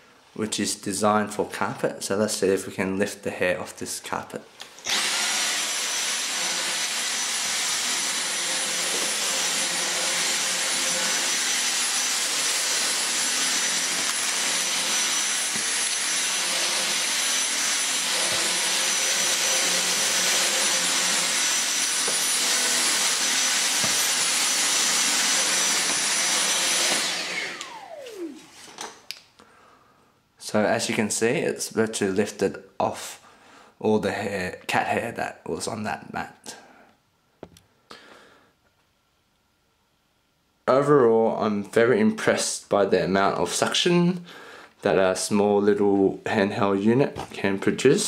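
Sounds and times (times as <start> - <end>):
motor winding down: 4.8 - 28.4
stick vacuum running: 4.8 - 28.6.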